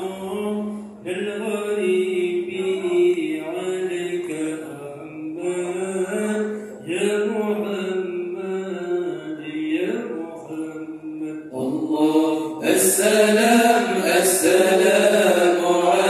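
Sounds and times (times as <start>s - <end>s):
men chanting unaccompanied: 11.5s - 16.0s.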